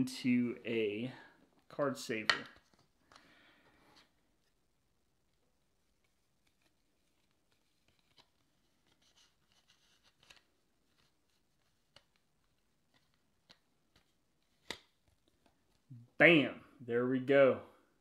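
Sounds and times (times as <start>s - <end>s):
card scraping into plastic sleeve: 6.0s - 12.2s.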